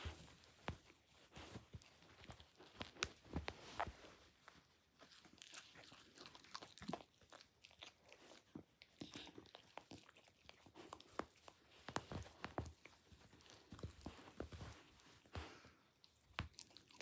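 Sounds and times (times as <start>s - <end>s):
dog chewing plush toy: 5.0s - 17.0s.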